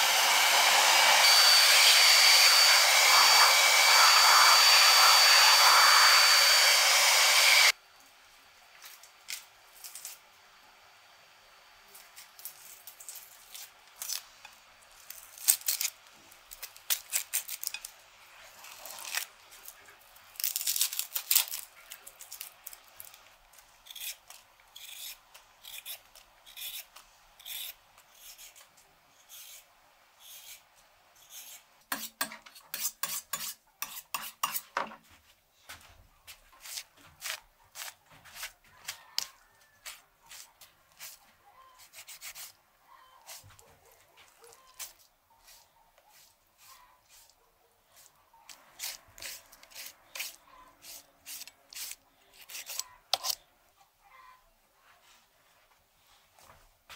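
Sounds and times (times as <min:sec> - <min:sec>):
onion skins crackling and rustling: 0:08.8 - 0:10.2, 0:11.9 - 0:24.4
knife scraping a carrot: 0:23.8 - 0:30.6, 0:31.2 - 0:34.8, 0:36.6 - 0:53.5.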